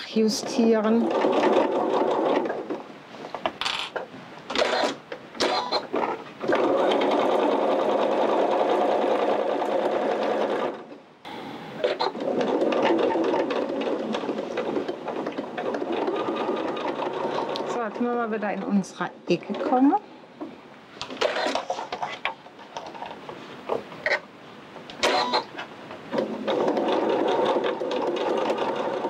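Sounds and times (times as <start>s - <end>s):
sewing machine stitching: 0.2s - 2.8s, 4.5s - 10.9s, 11.8s - 18.1s, 21.2s - 22.2s, 25.0s - 29.0s.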